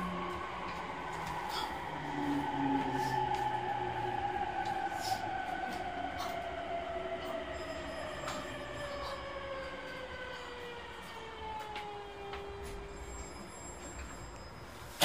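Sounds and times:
traction motor whine descending: 0.0s - 14.5s
train rolling on rails: 0.0s - 15.0s.

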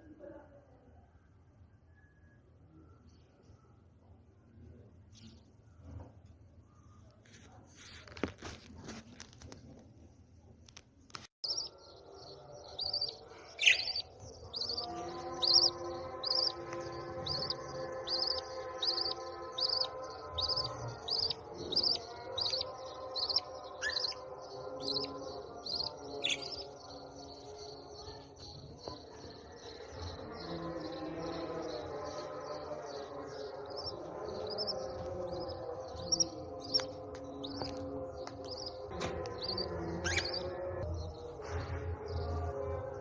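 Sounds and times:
chicks peeping: 11.4s - 41.3s.

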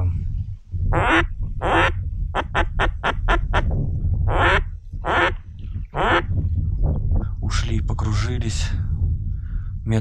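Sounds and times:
duck call quacking: 1.0s - 3.4s, 4.3s - 5.4s.

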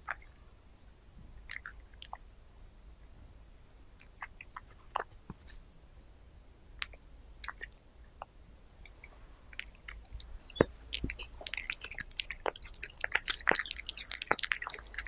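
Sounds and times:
cat chewing raw meat: 8.9s - 15.0s.

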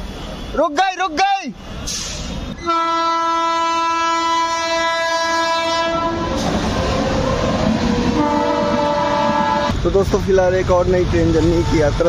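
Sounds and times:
train rumbling: 0.0s - 12.0s
locomotive horn blast: 2.1s - 9.9s.

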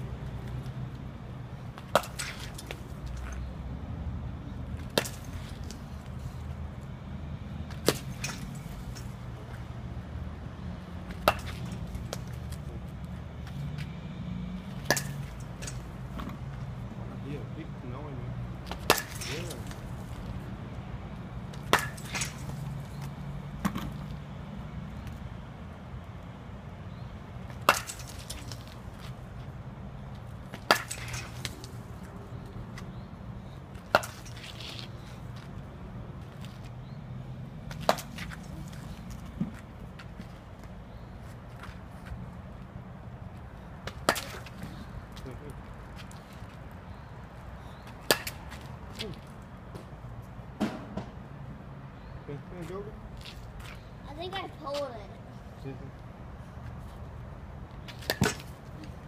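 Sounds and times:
bat hitting balls: 1.7s - 3.4s, 4.8s - 6.0s, 7.7s - 9.7s, 11.0s - 12.8s, 14.7s - 16.5s, 18.6s - 20.3s, 21.4s - 24.0s, 27.4s - 29.3s, 30.3s - 35.0s, 37.6s - 40.2s, 43.8s - 45.0s, 47.8s - 48.9s, 50.6s - 51.3s, 57.8s - 59.0s.

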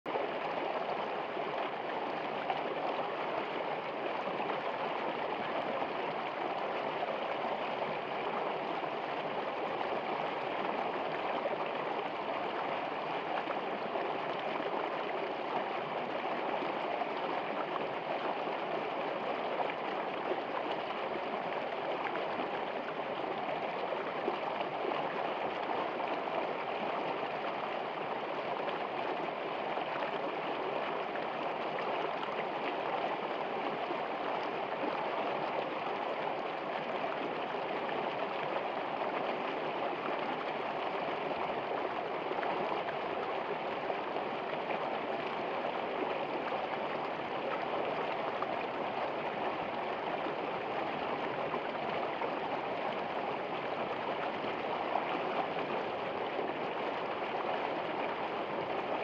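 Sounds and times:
stream flowing over rocks: 0.1s - 59.0s.

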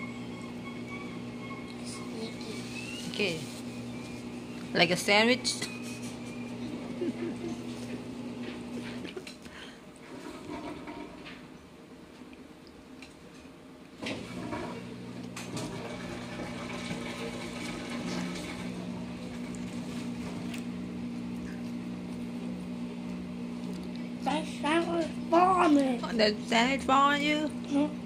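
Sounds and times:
household machine humming and rushing: 0.0s - 9.2s, 14.0s - 25.7s.

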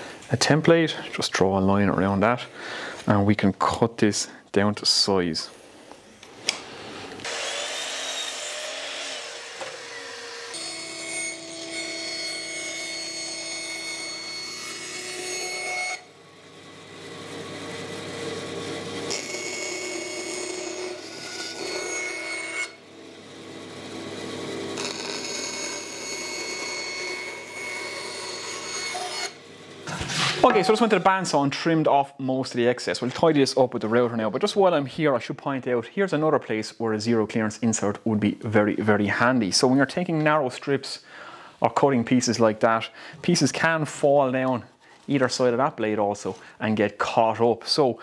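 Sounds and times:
bandsaw cutting plywood: 7.2s - 16.1s, 18.5s - 29.4s.

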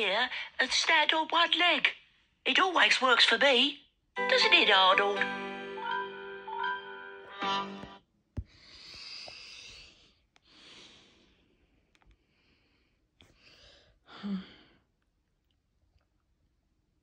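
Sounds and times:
person breathing softly: 8.4s - 14.9s.

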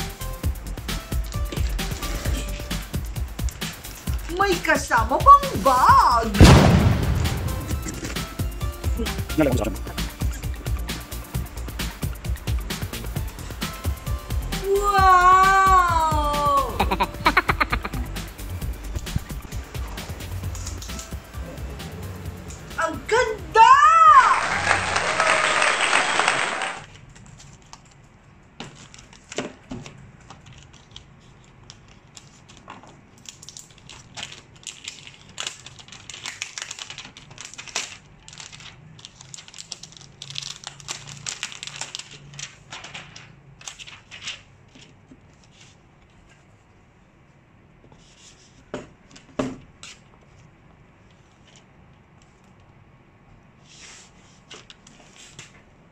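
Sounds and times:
music: 0.0s - 25.0s
plastic sleeve crinkling: 1.2s - 6.4s, 30.2s - 44.6s
crowd cheering: 23.8s - 26.8s.

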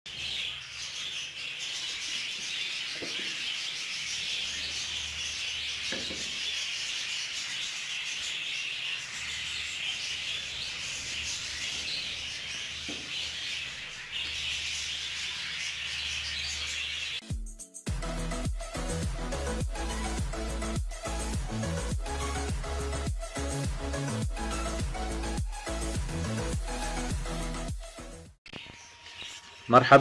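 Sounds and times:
chicks cheeping: 0.1s - 17.2s, 28.5s - 30.0s.

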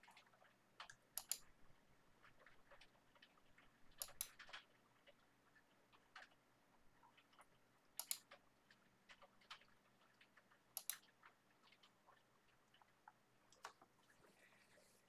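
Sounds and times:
computer mouse clicks: 0.0s - 1.5s, 2.4s - 5.2s, 7.0s - 12.9s, 13.5s - 13.9s.

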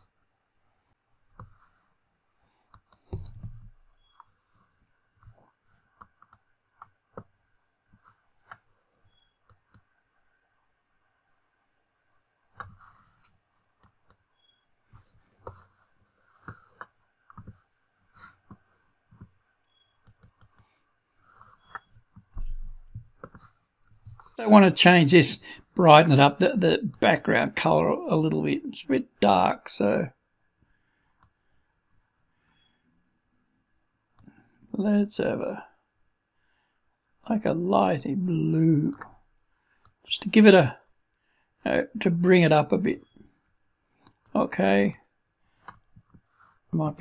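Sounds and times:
computer mouse clicking: 2.7s - 4.4s, 5.8s - 7.4s, 8.4s - 10.0s, 12.6s - 14.6s, 18.4s - 23.6s, 31.1s - 31.4s, 39.8s - 40.1s, 43.8s - 45.0s.

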